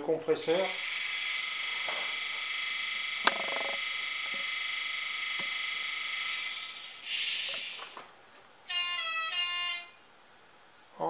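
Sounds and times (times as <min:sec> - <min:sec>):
air compressor buzzing: 0:00.4 - 0:08.1
short hiss: 0:06.4 - 0:08.1.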